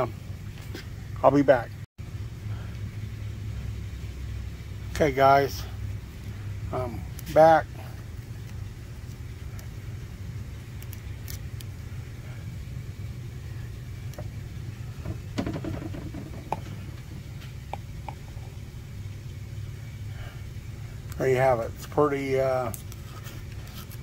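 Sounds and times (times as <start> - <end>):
low background hum: 0.0 - 24.0
handling rustle: 22.4 - 24.0.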